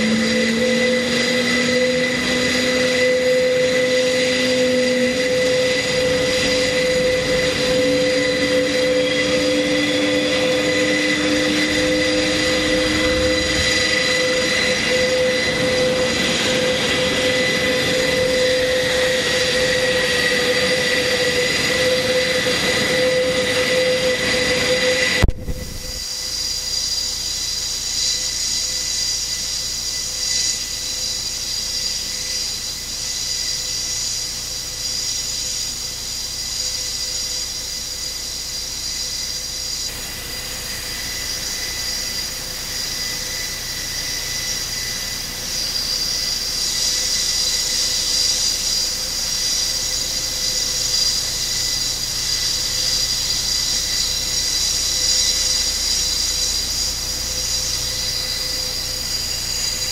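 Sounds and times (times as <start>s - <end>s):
turboprop engines running: 0.0s - 59.9s.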